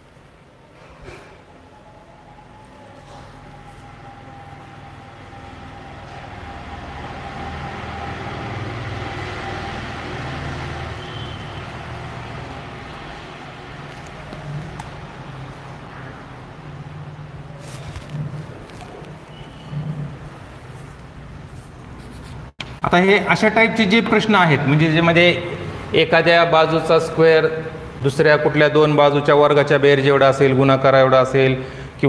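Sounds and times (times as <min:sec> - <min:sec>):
vehicle engine passing by: 0:01.5 - 0:21.2.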